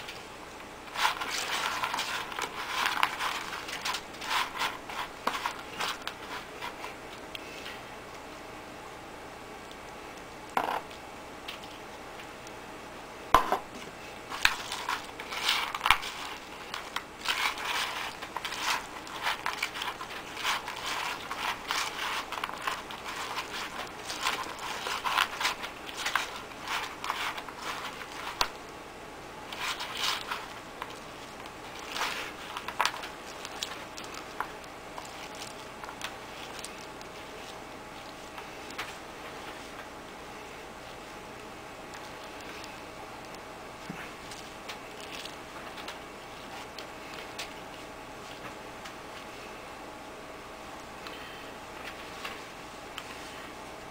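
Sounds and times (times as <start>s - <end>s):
crunching of gritty bait mix: 14.3s - 28.7s, 29.4s - 38.9s.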